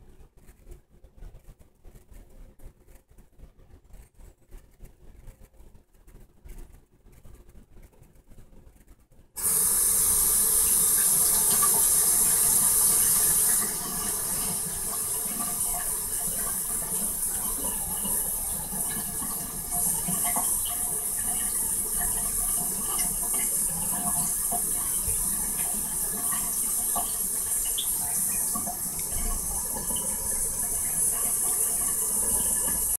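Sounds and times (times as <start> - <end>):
faucet water splashing into sink: 9.4 - 33.0.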